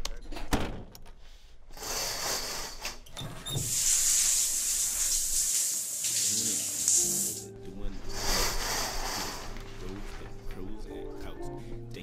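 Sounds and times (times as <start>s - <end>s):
shower water spraying: 3.6s - 7.4s, 8.1s - 9.6s.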